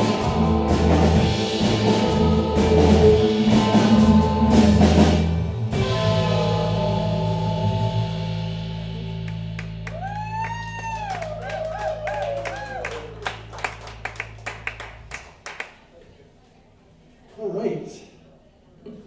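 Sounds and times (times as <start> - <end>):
rock band chord ringing: 0.0 - 10.2
people clapping: 9.2 - 16.0.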